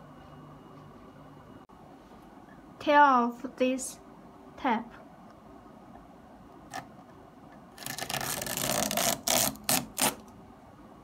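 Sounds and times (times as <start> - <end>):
plastic film peeling off: 7.8 - 10.2.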